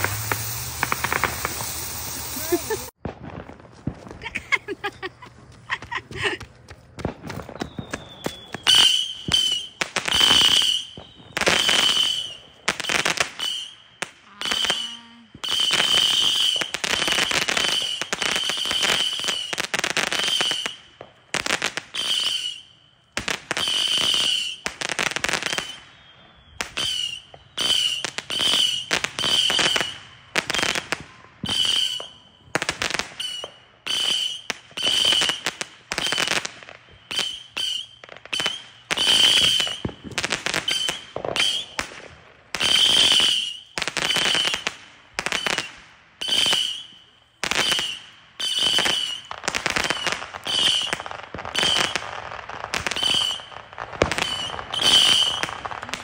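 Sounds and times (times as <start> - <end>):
firework shots whistling: 0.0 - 5.2, 6.2 - 56.0.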